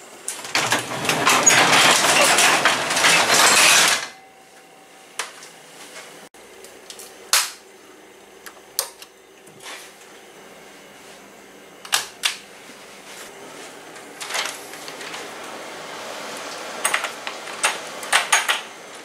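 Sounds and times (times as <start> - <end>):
garage door rattling down: 0.4 - 4.2.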